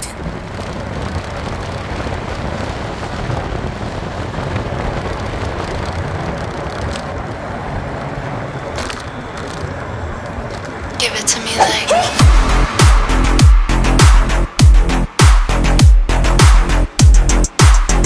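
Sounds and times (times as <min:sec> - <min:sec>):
wind rushing over microphone: 0:00.0 - 0:11.0
tyre and road noise: 0:00.0 - 0:18.0.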